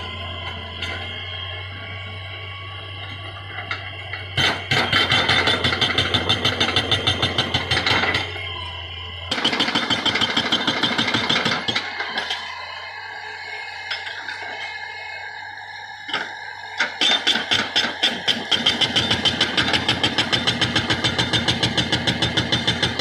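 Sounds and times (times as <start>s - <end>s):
diesel engine running: 0.0s - 23.0s
hydraulic breaker hammering rock: 4.4s - 8.5s, 9.3s - 12.4s, 16.8s - 23.0s.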